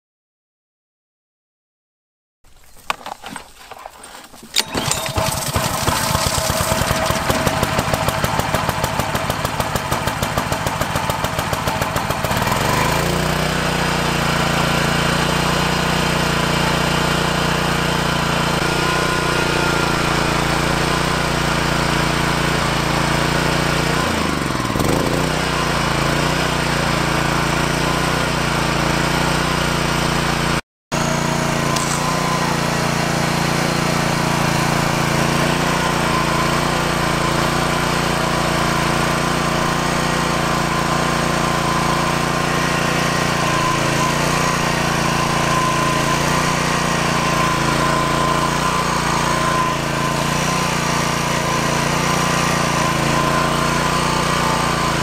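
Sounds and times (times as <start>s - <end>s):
engine pull-start: 2.9s - 14.2s, 31.0s - 55.0s
small engine running: 4.1s - 55.0s.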